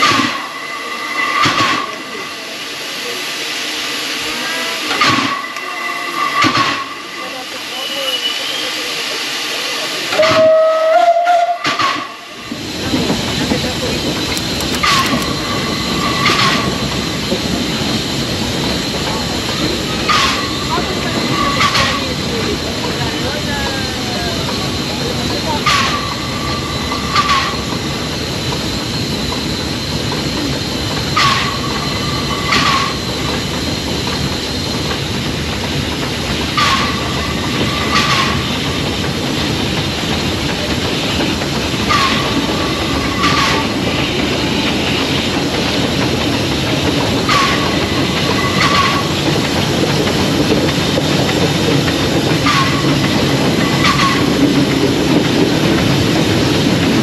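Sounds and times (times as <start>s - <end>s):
wheels rumbling on rail: 0.0s - 57.0s.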